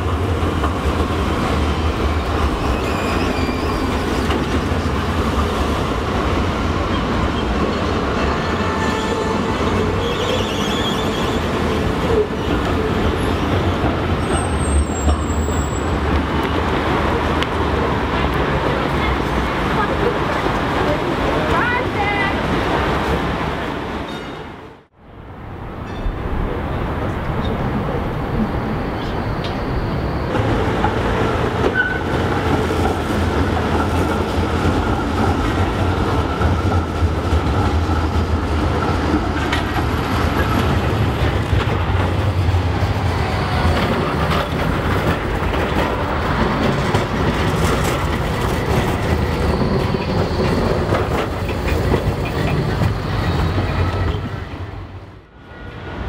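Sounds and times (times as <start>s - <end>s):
trams rumbling on rails: 0.0s - 56.0s
clicks of tram wheels: 43.5s - 54.3s.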